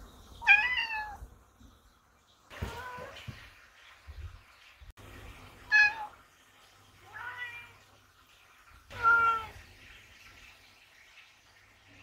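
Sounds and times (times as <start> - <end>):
cats meowing: 0.4 - 1.3, 7.0 - 7.8, 8.9 - 9.6.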